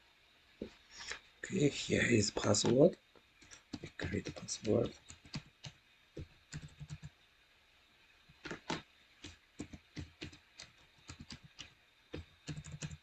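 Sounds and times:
computer keyboard keystrokes: 3.4 - 7.1, 8.4 - 13.0.

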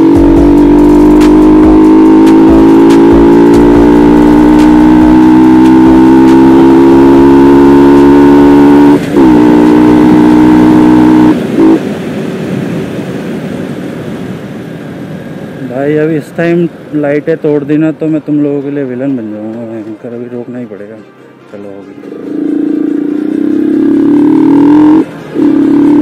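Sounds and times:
motorcycle engine running: 0.0 - 11.9, 22.1 - 26.0
wind and road noise: 0.0 - 26.0.

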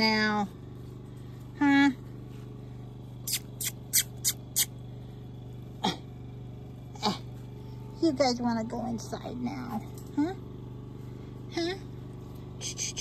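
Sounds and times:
steady low hum: 0.0 - 13.0
puppies snuffling: 3.2 - 4.7
puppies yipping: 3.3 - 4.7.

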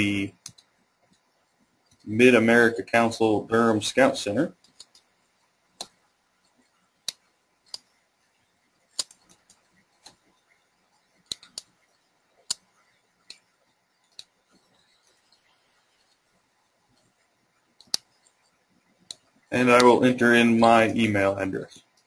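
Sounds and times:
computer mouse and keyboard clicks: 0.3 - 1.2, 4.5 - 5.1, 8.9 - 16.3, 17.8 - 20.0.

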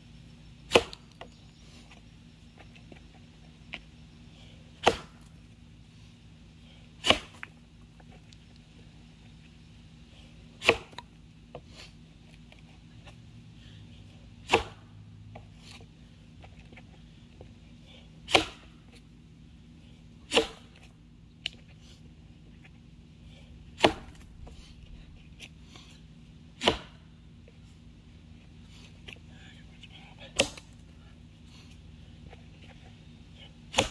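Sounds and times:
axe chopping log: 0.7 - 1.2, 4.8 - 5.3, 7.0 - 7.5, 10.6 - 11.0, 14.4 - 14.9, 18.2 - 18.7, 20.3 - 20.8, 23.8 - 24.4, 26.6 - 27.0, 30.4 - 30.8, 33.7 - 33.9.

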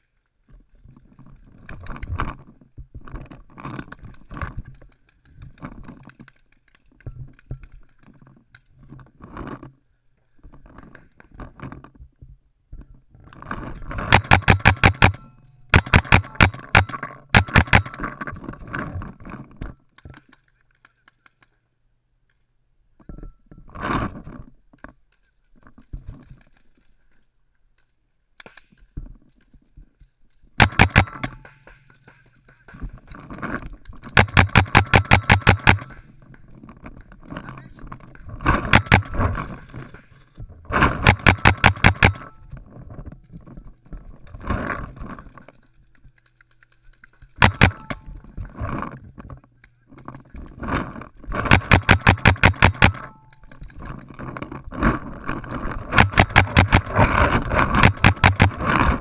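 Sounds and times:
paintball markers firing: 14.1 - 18.1, 30.6 - 32.8, 34.0 - 36.1, 38.6 - 39.2, 40.9 - 42.3, 46.4 - 48.1, 51.4 - 53.6, 55.9 - 59.0.

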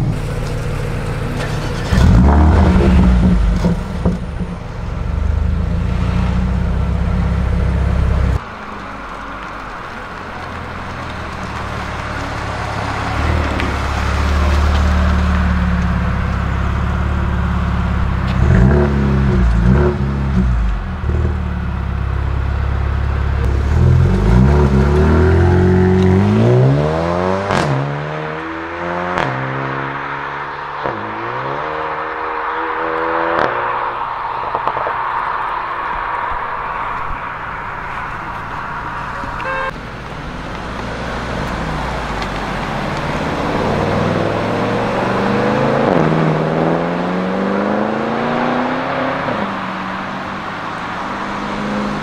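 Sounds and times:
car engine revving: 0.0 - 8.4, 9.1 - 52.0
car accelerating through gears: 1.4 - 4.2, 23.4 - 35.0, 40.8 - 52.0.

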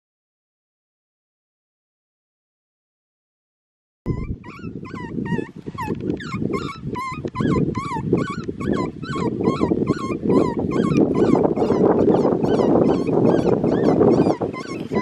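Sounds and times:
animal whining yelps: 4.1 - 15.0.

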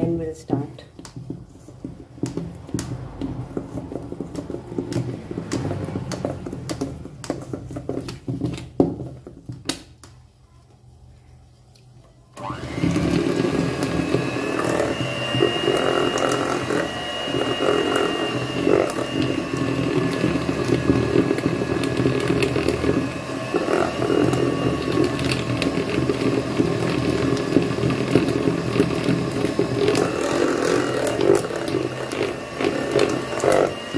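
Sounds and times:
electric hand mixer whining: 1.2 - 7.0, 12.4 - 33.9.

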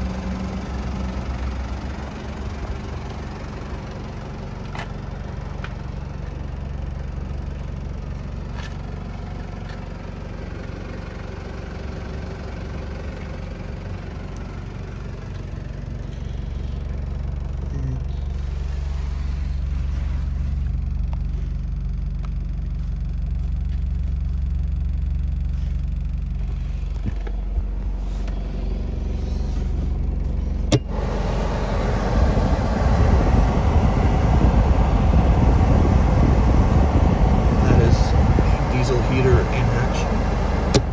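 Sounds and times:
low mechanical rumble: 0.0 - 40.9
heater fan blowing air: 27.0 - 40.9.

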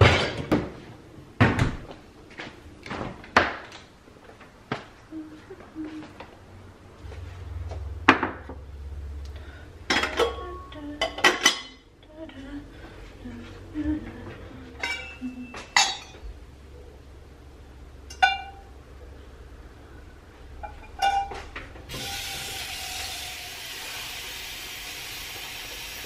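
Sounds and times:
metal pot and lid clinking: 14.8 - 16.2, 18.1 - 18.6, 20.6 - 21.4.

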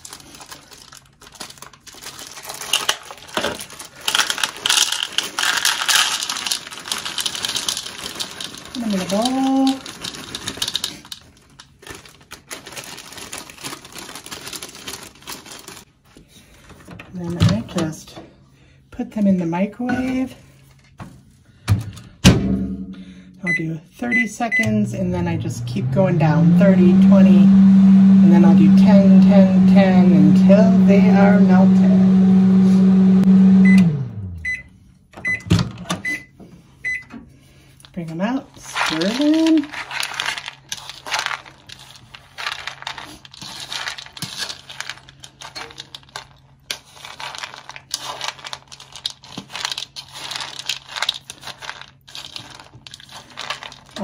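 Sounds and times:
chips dropping into a bowl: 0.0 - 12.6, 38.7 - 54.0
plastic bag crinkling: 0.0 - 16.1, 37.7 - 54.0
microwave oven humming: 24.6 - 36.4.

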